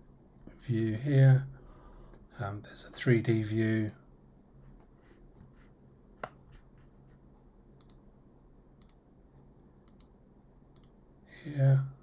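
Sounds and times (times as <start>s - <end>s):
faint computer mouse clicks: 7.8s - 8.0s, 8.8s - 11.0s.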